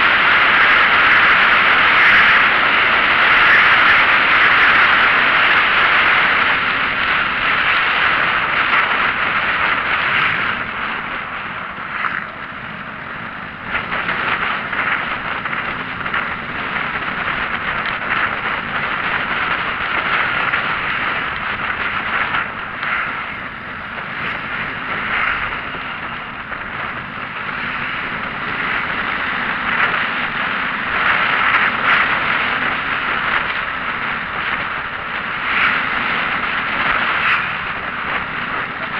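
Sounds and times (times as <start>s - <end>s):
vehicle road and wind noise: 0.0s - 38.9s.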